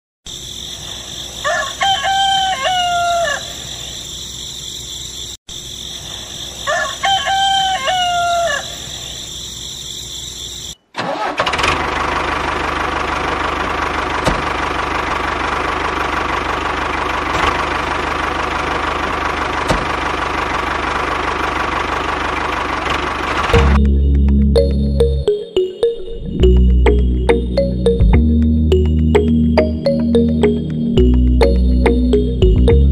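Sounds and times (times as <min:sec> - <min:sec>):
rooster crowing: 0:01.4 - 0:03.8, 0:06.6 - 0:09.2
engine running with high whine: 0:11.4 - 0:32.9.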